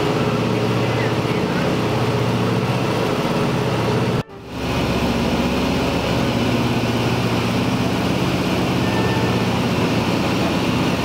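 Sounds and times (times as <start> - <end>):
propeller aircraft engines droning: 0.0 - 11.0.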